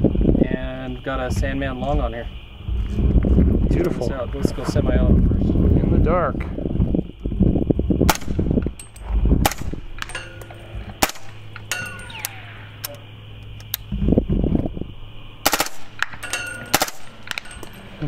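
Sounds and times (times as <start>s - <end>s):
suppressed rifle shots: 8.0s - 8.5s, 9.4s - 10.2s, 10.9s - 13.0s, 15.4s - 17.6s
steel targets ringing: 8.1s - 13.2s, 15.4s - 18.0s.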